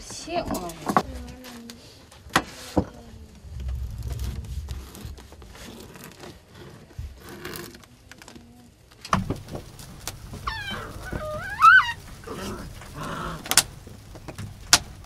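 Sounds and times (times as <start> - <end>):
rustling and crinkling: 0.0 - 15.0.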